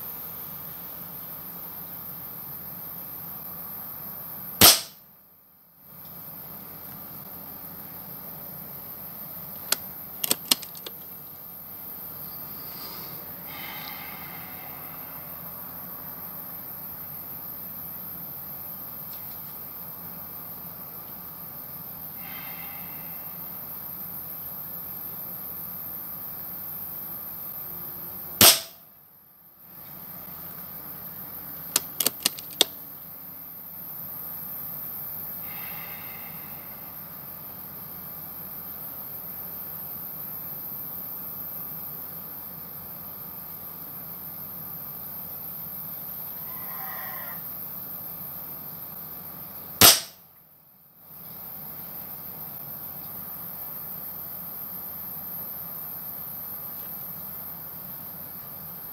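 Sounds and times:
background hiss: 0.0s - 58.9s
air rifle shot: 4.6s - 5.0s, 28.4s - 28.8s, 49.8s - 50.2s
air rifle metallic clicks: 9.6s - 11.0s, 31.8s - 32.7s.

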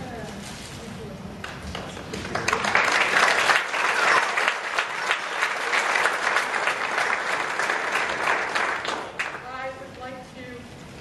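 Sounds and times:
audience applauding: 1.7s - 9.4s.

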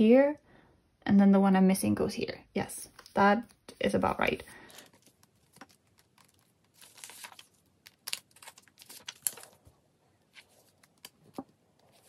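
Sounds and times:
plastic sleeves crinkling: 2.9s - 12.0s.

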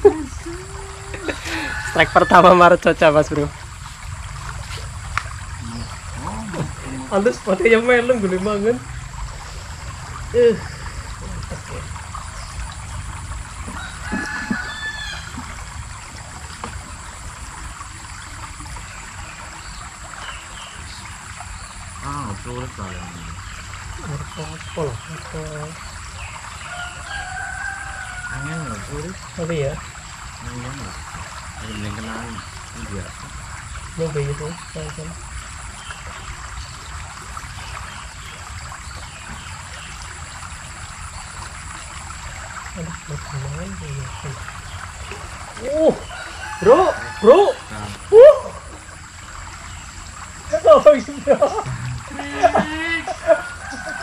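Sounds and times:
river water rushing: 0.0s - 22.7s, 23.4s - 54.0s
stream flowing: 0.0s - 54.0s
rooster crowing: 1.1s - 2.8s, 13.6s - 15.6s, 26.6s - 28.9s, 45.9s - 48.6s, 52.1s - 54.0s.

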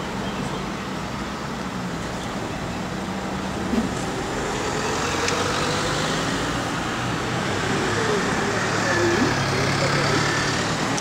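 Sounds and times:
vehicle engine passing by: 3.5s - 11.0s.

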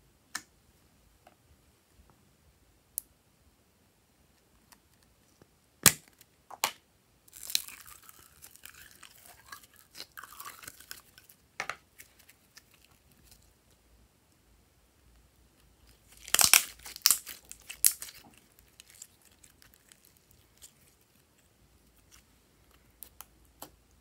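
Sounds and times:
slime squelching and crackling: 7.3s - 13.5s, 15.8s - 23.8s.

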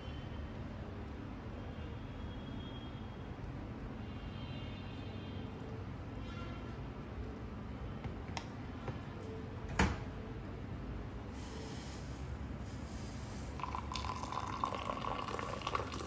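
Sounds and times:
milk pouring into a glass: 13.5s - 16.0s.

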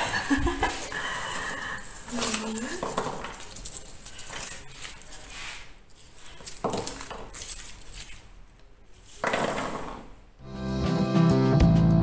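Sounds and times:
garlic skins crackling: 0.5s - 10.0s
hand brushing across counter: 4.4s - 6.2s.

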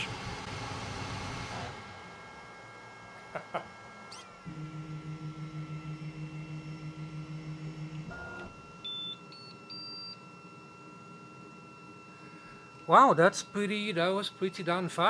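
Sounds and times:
stepper motors humming in pulses: 0.0s - 15.0s
rising short beeps: 5.4s - 10.2s.

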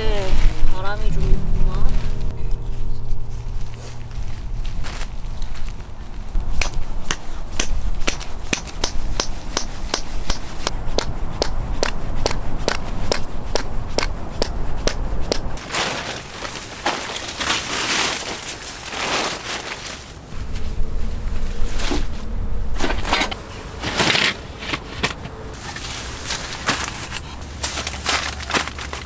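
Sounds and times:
hammer striking tent peg: 6.6s - 15.5s
groundsheet rustling: 15.6s - 29.0s.

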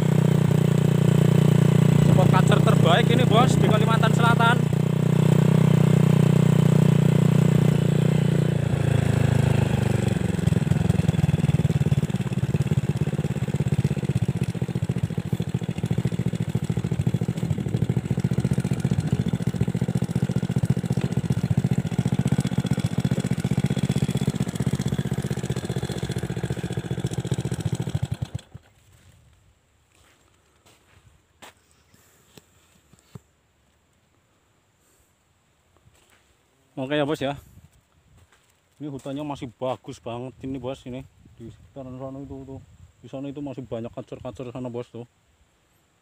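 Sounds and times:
small motorcycle engine running: 0.0s - 29.0s
rattle over bumps: 9.2s - 28.7s.

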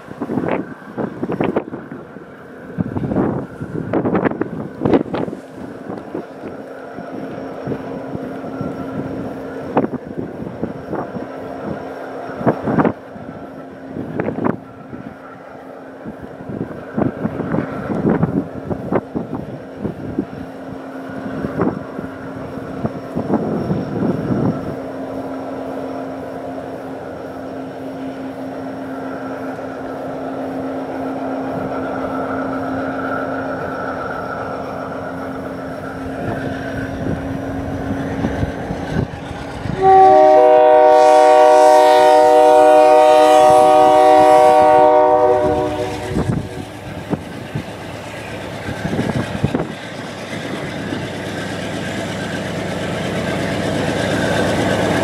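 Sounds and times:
locomotive engine droning: 0.0s - 55.0s
train wheel noise: 0.0s - 55.0s
train air horn blast: 39.8s - 46.7s.

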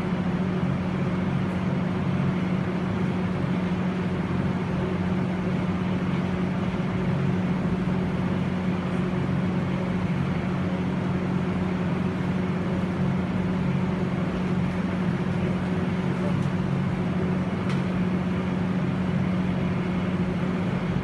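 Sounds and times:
machinery humming: 0.0s - 21.0s.

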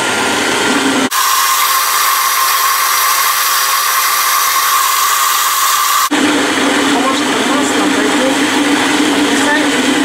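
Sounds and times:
food processor motor whine: 0.4s - 7.4s.

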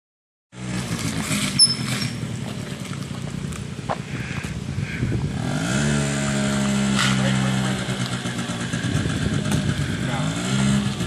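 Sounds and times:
scooter engine idling: 0.7s - 5.3s, 7.2s - 11.0s
short high-pitched squeak: 1.5s - 2.2s.

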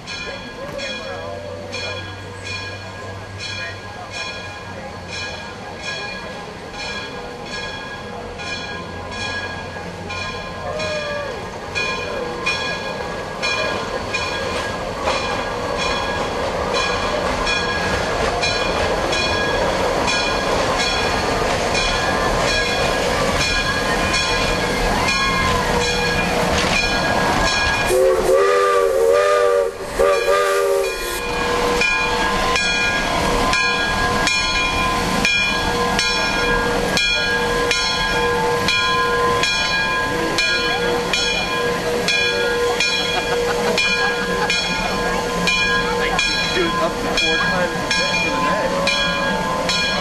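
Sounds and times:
steam locomotive chuffing: 0.0s - 50.0s
steam hissing: 8.9s - 50.0s
steam whistle blasts: 27.8s - 32.8s.

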